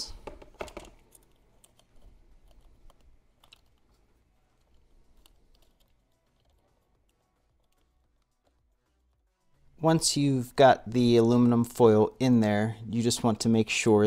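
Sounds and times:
fingers clicking and tapping: 0.1s - 9.3s.

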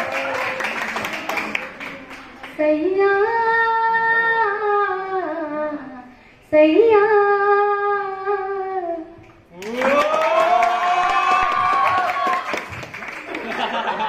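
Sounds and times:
crowd noise: 0.0s - 3.0s
woman singing unaccompanied: 2.5s - 9.2s.

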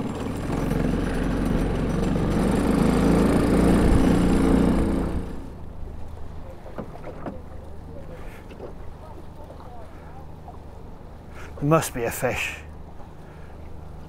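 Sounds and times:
wind: 0.0s - 14.0s.

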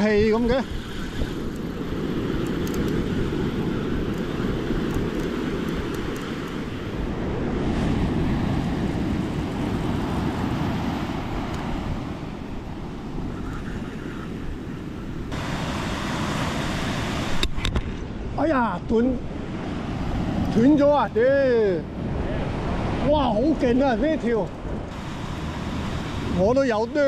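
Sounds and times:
wind noise on microphone: 0.0s - 21.0s
ocean surf: 0.0s - 27.0s.

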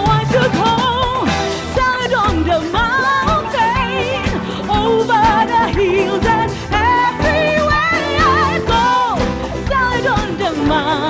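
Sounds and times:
live band playing gospel song: 0.0s - 11.0s.

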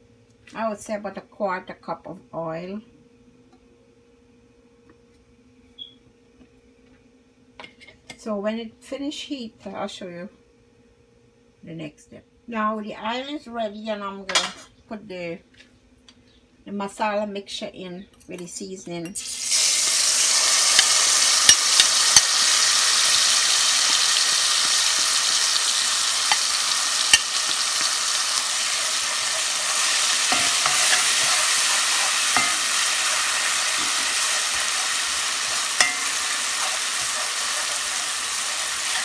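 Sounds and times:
paste sizzling in hot oil: 19.2s - 39.0s
utensils knocking against pot: 20.7s - 22.3s, 30.3s - 31.5s, 32.3s - 32.8s, 35.8s - 36.3s
spoon stirring: 29.4s - 39.0s.

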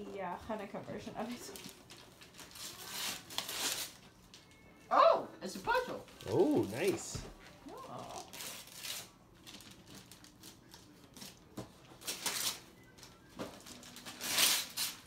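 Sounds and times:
wrapping paper tearing and crinkling: 1.2s - 4.1s, 6.0s - 15.0s.

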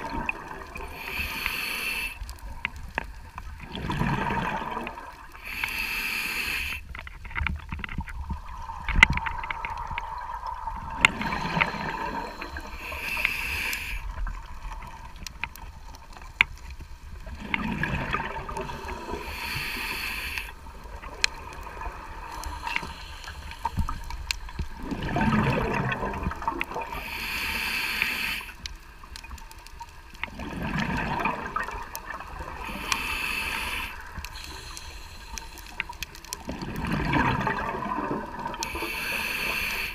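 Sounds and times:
regulator hiss on inhale: 0.8s - 2.5s, 5.3s - 7.2s, 11.2s - 14.4s, 18.6s - 20.7s, 22.2s - 24.8s, 26.8s - 28.7s, 32.5s - 36.2s, 38.5s - 39.9s
rumbling burst of exhaled bubbles: 3.6s - 5.2s, 24.8s - 26.9s, 30.3s - 32.6s, 36.5s - 38.6s
faint sharp clicks: 32.7s - 36.6s.

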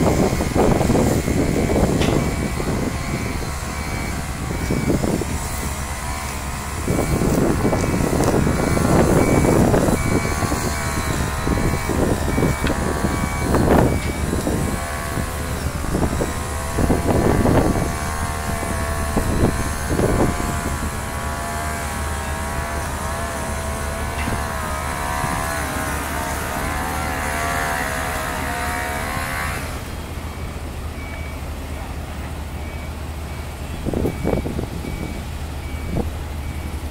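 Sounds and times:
heavy diesel engine running: 0.0s - 36.9s.

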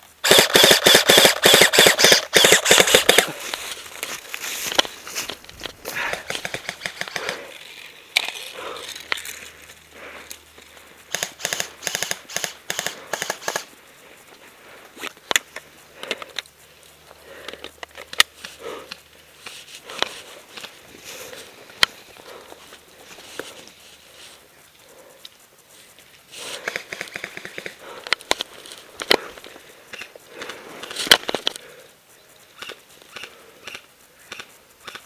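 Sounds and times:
airsoft guns firing bursts: 0.2s - 3.4s, 6.2s - 7.4s, 11.1s - 13.7s
dry grass rustling: 0.2s - 34.8s.

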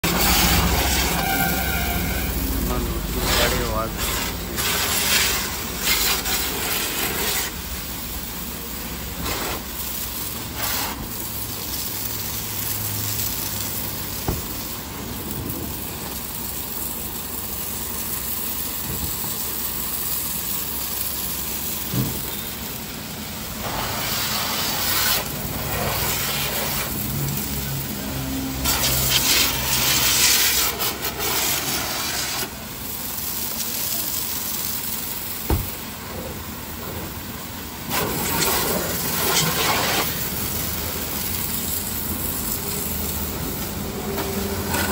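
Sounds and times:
pressure hose spraying car: 0.0s - 44.9s.

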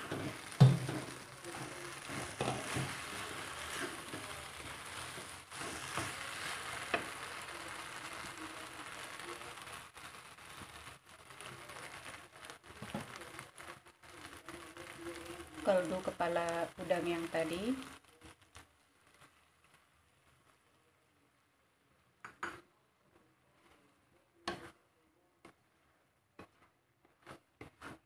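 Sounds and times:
spatula scraping a pan: 0.0s - 7.4s, 25.5s - 28.0s
rice sizzling in a wok: 0.0s - 28.0s.

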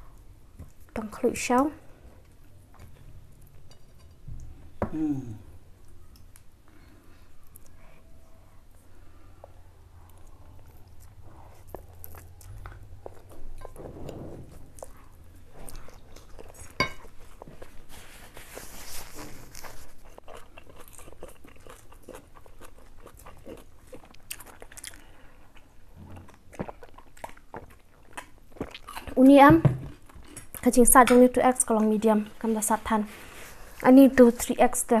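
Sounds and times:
people chewing: 4.9s - 30.8s.

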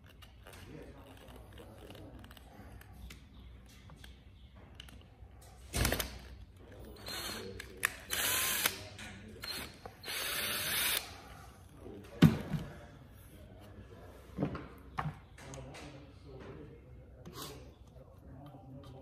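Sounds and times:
cordless drill running: 8.1s - 8.8s, 9.5s - 11.1s.

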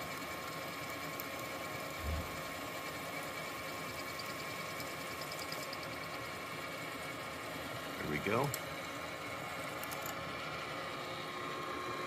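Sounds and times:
low bump: 2.0s - 2.4s.

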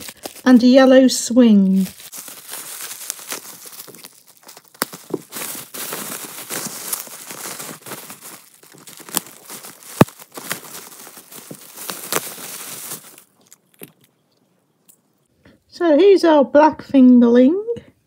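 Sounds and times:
bubble wrap crinkling: 0.0s - 14.2s
bubble wrap snap: 1.7s - 13.9s.

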